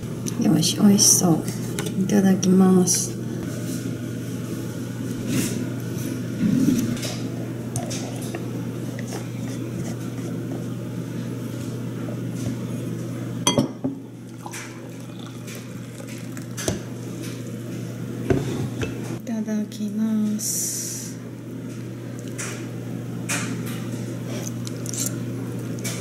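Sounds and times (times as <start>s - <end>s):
steady low hum: 0.0s - 26.0s
tea pouring: 14.2s - 16.8s.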